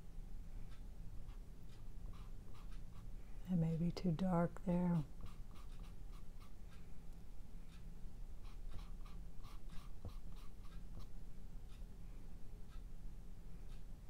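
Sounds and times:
paintbrush scrubbing on canvas: 5.2 - 6.6.

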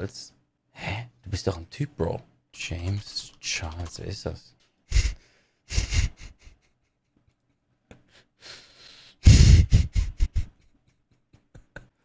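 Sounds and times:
man laughing breathily: 4.9 - 7.0, 9.1 - 12.0.

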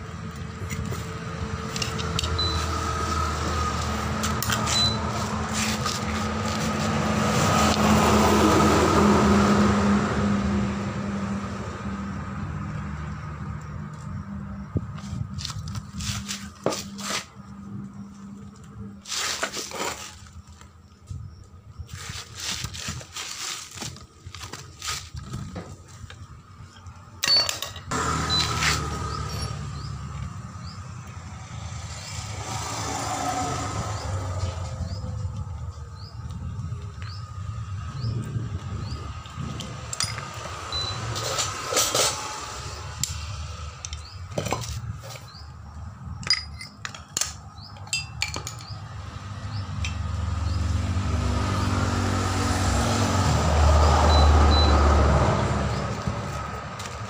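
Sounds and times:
metal parts clinking: 27.2 - 27.9, 39.9 - 40.3, 46.2 - 48.8.

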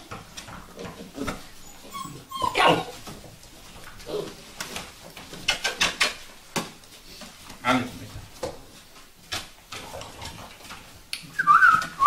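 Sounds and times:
light knocks of scrambling: 0.0 - 11.1
puppies whimpering and yipping: 1.5 - 3.1.

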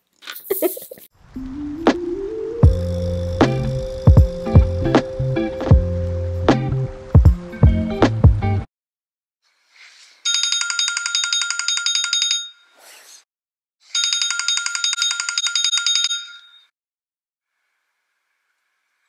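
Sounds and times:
telephone bell ringtone: 10.3 - 12.7, 13.9 - 16.7.

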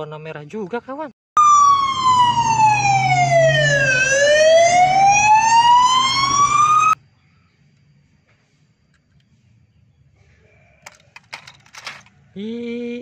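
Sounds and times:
fire engine siren wailing: 1.4 - 7.0.

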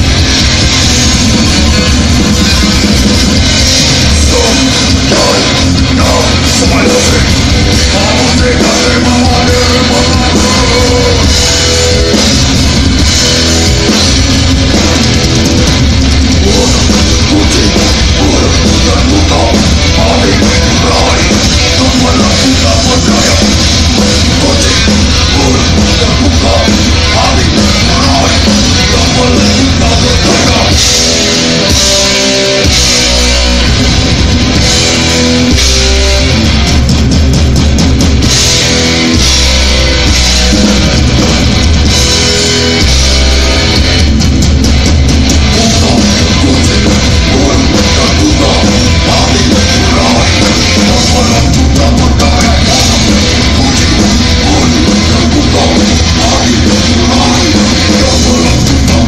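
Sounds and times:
distorted electric guitars: 0.0 - 59.0
drum kit: 0.0 - 59.0.

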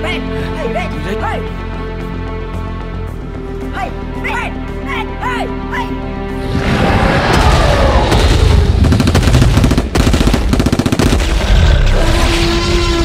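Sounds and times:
automatic gunfire: 8.8 - 11.5.

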